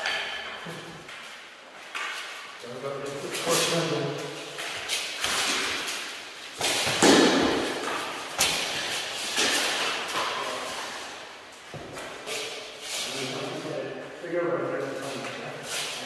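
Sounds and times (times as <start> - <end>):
armour thuds and clattering: 6.6 - 10.5.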